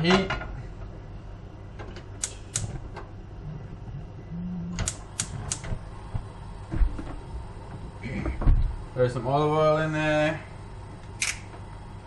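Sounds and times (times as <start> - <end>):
gas hob igniter clicking: 2.1 - 3.1, 4.8 - 5.8.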